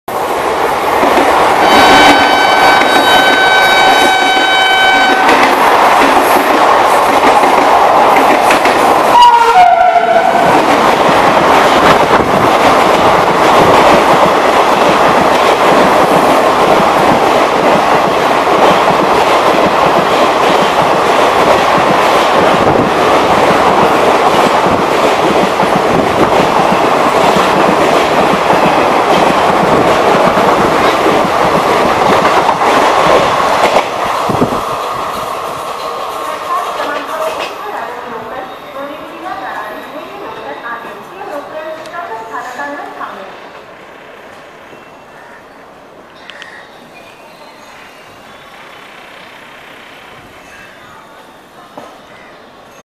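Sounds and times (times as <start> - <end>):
train wheel clatter: 0.9 - 37.7
locomotive horn chord: 1.7 - 5.3, 9.2 - 10.4.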